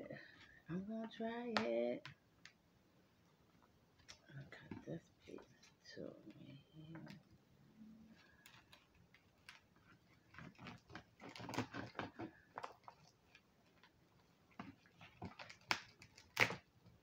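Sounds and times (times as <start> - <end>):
crunchy cracks of crisp skin: 14.6 - 16.7.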